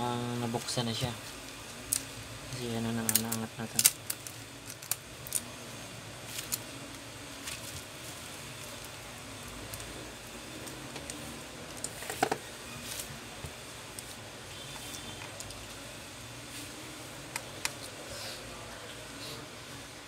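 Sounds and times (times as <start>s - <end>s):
low background hum: 0.0s - 20.0s.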